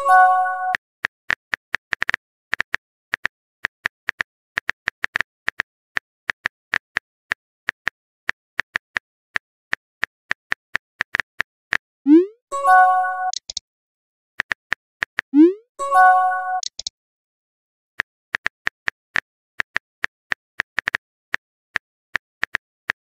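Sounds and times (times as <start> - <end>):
phone keyboard typing clicks: 13.2 - 13.6, 16.5 - 16.9.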